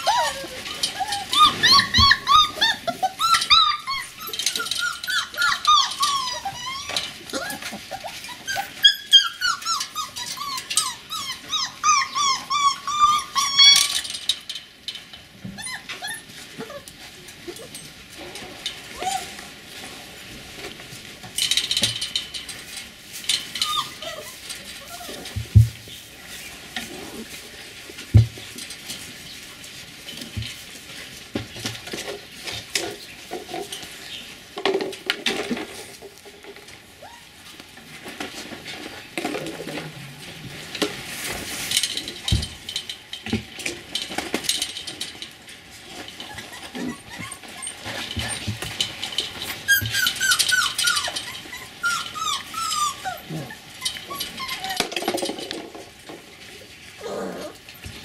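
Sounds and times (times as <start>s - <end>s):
puppy whimpers: 0.0s - 14.1s, 15.6s - 17.8s, 19.0s - 19.4s, 23.5s - 25.4s, 37.0s - 37.5s, 46.2s - 48.5s, 49.5s - 55.2s, 57.0s - 57.6s
puppies scuffling in straw: 0.0s - 58.0s.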